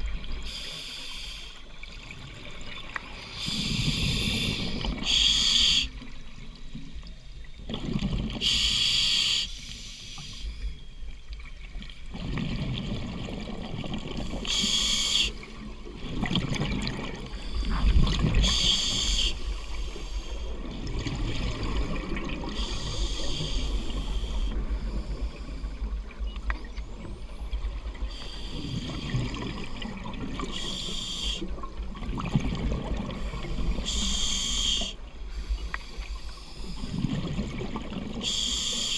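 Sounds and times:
regulator breath hiss: 0:00.4 - 0:01.6, 0:03.3 - 0:06.0, 0:08.4 - 0:10.6, 0:14.4 - 0:15.5, 0:18.4 - 0:20.6, 0:22.6 - 0:25.9, 0:28.1 - 0:29.1, 0:30.5 - 0:31.5, 0:33.2 - 0:37.0, 0:38.2 - 0:38.9
exhaled air bubbling: 0:07.5 - 0:08.6, 0:12.0 - 0:35.0, 0:36.6 - 0:38.3.

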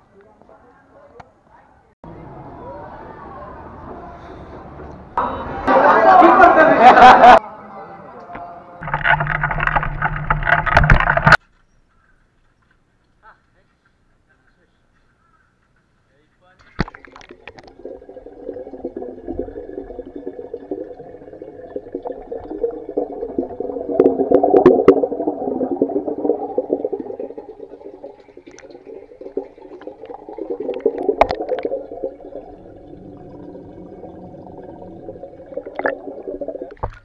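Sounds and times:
muffled underwater churning: 0:16.9 - 0:37.0.

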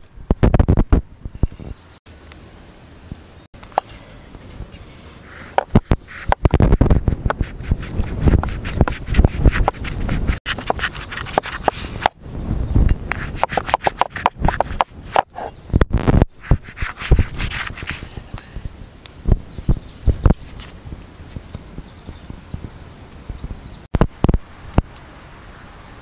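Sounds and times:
knife rasping over hide: 0:05.3 - 0:12.2, 0:13.1 - 0:15.5, 0:16.4 - 0:18.2.

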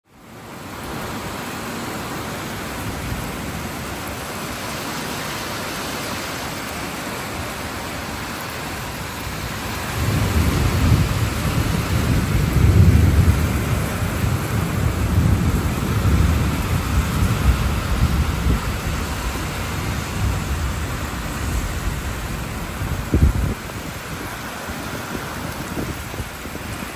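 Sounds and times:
heavy rain falling: 0:00.1 - 0:26.9
rolling thunder rumble: 0:08.8 - 0:26.9.

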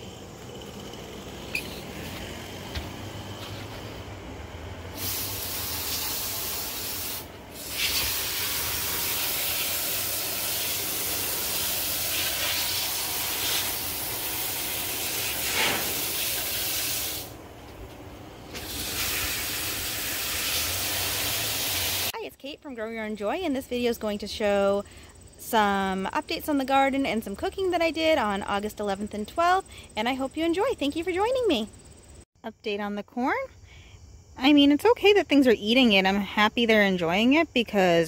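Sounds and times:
hose spraying water on plants: 0:04.9 - 0:17.4, 0:18.5 - 0:22.2.

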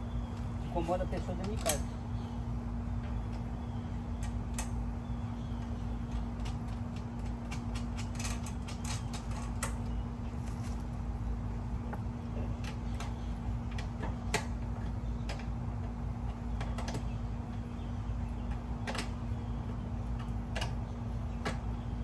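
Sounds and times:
steady low hum: 0:00.0 - 0:22.0
light clicks and knocks of parts: 0:00.3 - 0:01.9, 0:03.0 - 0:04.9, 0:05.5 - 0:10.9, 0:11.9 - 0:22.0.

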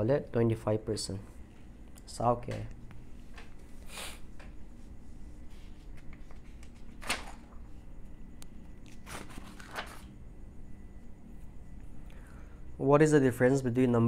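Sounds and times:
faint low hum: 0:00.0 - 0:14.0
pages turning: 0:05.5 - 0:07.6, 0:08.9 - 0:10.1.

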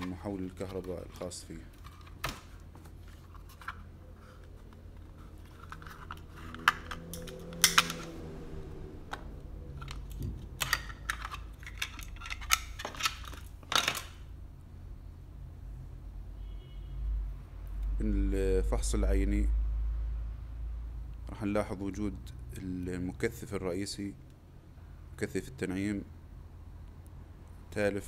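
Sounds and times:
plastic case snapping open: 0:05.6 - 0:08.1.

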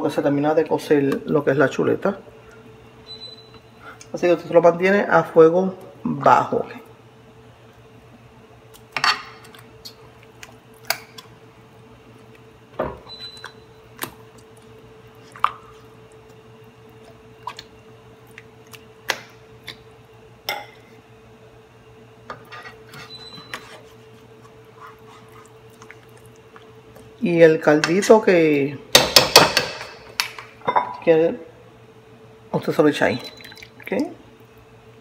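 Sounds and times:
fork scraping frying pan: 0:22.3 - 0:25.4
sauce squelching: 0:23.1 - 0:27.1.

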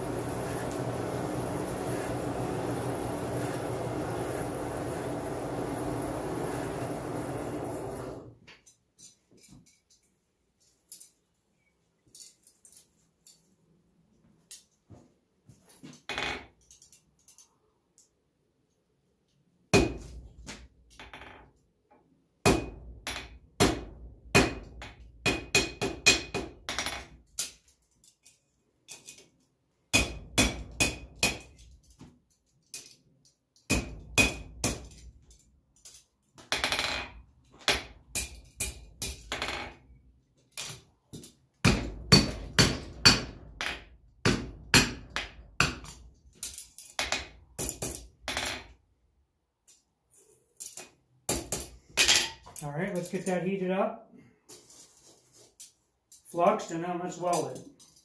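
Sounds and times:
hammer striking steel on anvil: 0:22.5 - 0:22.8, 0:23.6 - 0:26.5, 0:29.9 - 0:31.5, 0:41.7 - 0:43.4.

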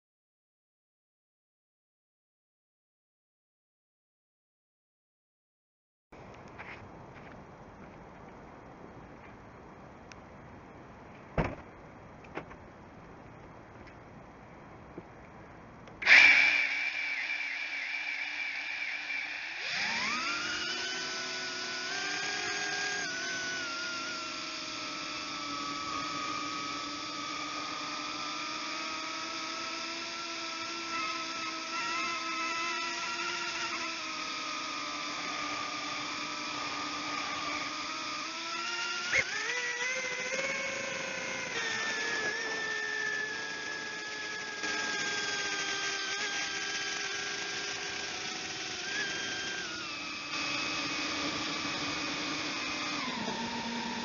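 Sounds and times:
drone motors whining: 0:15.9 - 0:54.0.

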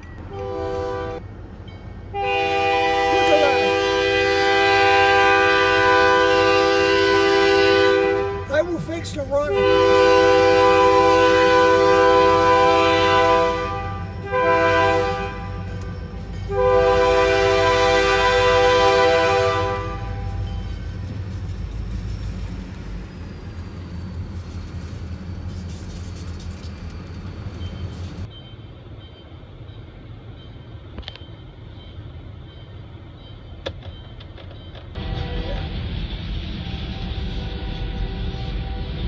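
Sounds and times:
freight train rumbling past: 0:00.0 - 0:39.0
locomotive air horn blasts: 0:00.3 - 0:01.2, 0:02.1 - 0:08.8, 0:09.4 - 0:20.5.

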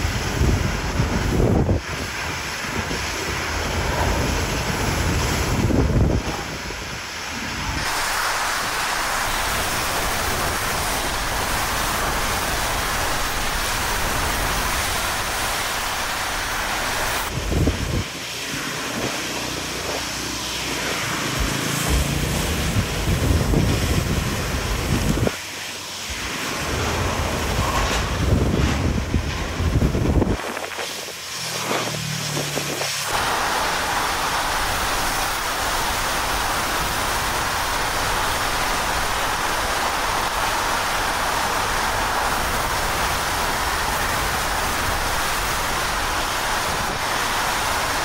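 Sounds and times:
wind buffeting microphone: 0:00.0 - 0:25.4, 0:26.1 - 0:48.0
hurricane wind roaring: 0:00.0 - 0:48.0
rushing water: 0:00.0 - 0:48.0
low rumbles: 0:20.9 - 0:25.3.

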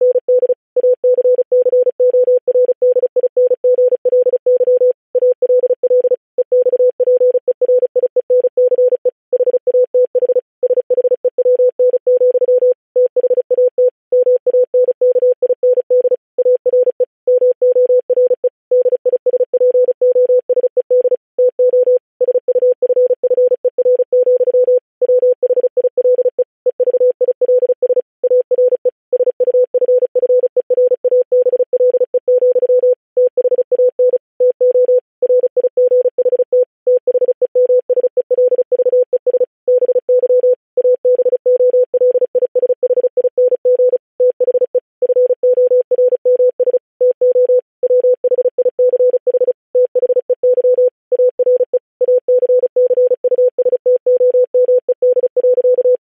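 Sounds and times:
morse code tone: 0:00.0 - 0:56.0.

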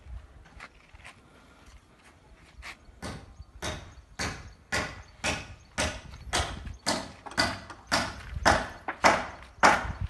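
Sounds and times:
footsteps crunching on gritty ground: 0:00.0 - 0:03.0.

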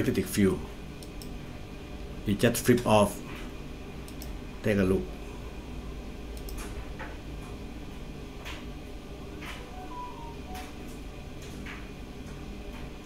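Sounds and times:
low room hum: 0:00.0 - 0:13.0
short high tone: 0:09.6 - 0:10.9.

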